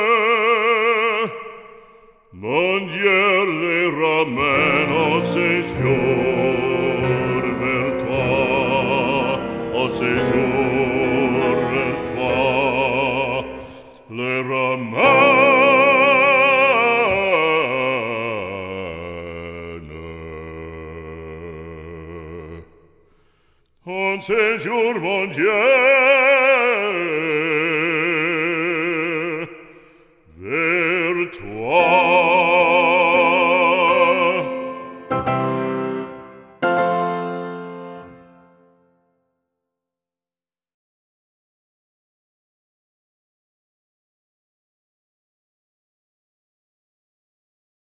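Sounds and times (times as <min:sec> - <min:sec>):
operatic solo voice singing: 0:00.0 - 0:23.1, 0:23.8 - 0:35.1.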